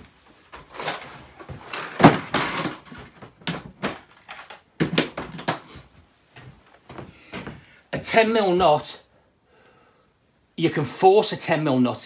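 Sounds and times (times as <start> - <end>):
objects knocking and clattering: 0.5 - 5.8.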